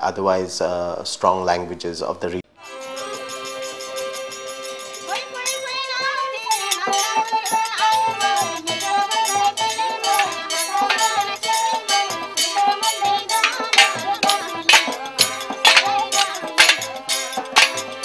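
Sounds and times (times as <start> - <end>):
harmonium chord: 2.6 - 7.4
barrel drum beating: 7.2 - 18.0
person singing melody: 7.8 - 18.0
rattles: 8.8 - 18.0.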